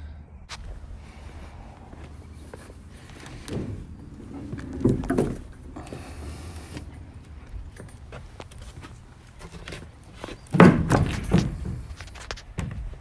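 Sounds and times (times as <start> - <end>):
metal trailer door clunking and rattling: 10.5 - 12.0.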